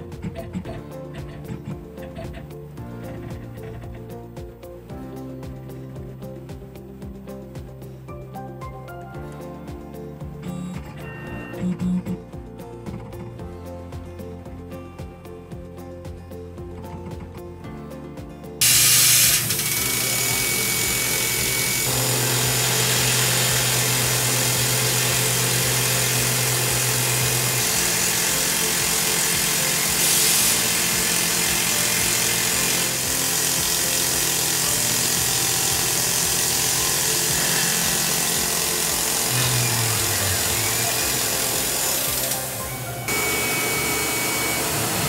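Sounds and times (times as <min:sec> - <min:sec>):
milling machine cutting metal: 0:10.4 - 0:12.2, 0:18.6 - 0:45.0
hiss of coolant spray: 0:18.6 - 0:21.1, 0:29.4 - 0:31.2.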